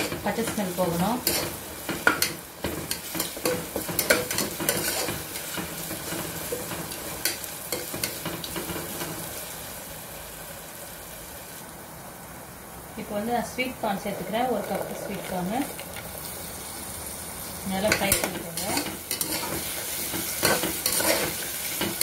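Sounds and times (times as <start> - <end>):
food sizzling in oil: 0.0 - 11.8, 13.1 - 22.0
spatula scraping a pot: 3.9 - 5.2, 18.7 - 19.7, 20.4 - 21.4.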